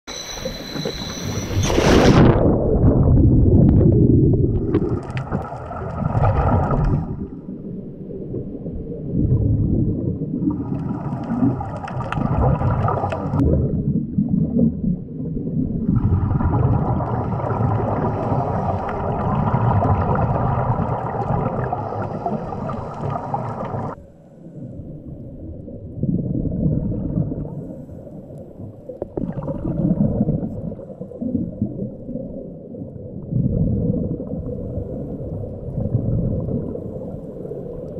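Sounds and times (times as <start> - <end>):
steady whine: 0.1 - 2.5
low rumble of water and bubbles: 0.1 - 37.9.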